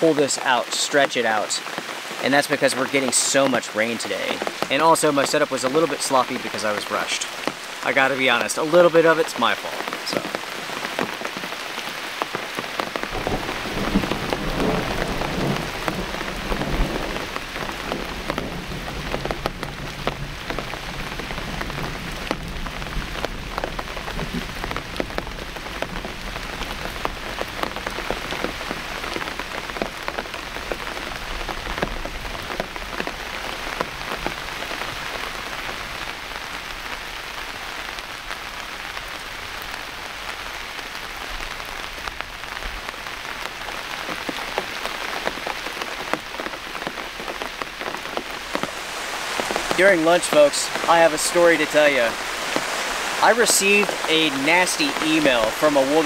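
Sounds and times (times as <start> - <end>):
heavy rain on a tent: 0.0 - 56.0
distant thunder rumble: 12.9 - 33.0.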